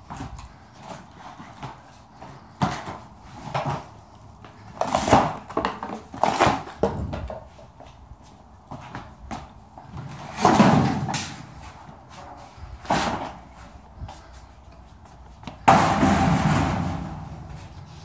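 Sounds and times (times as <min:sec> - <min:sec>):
steel garage door clattering: 0:15.7 - 0:17.6.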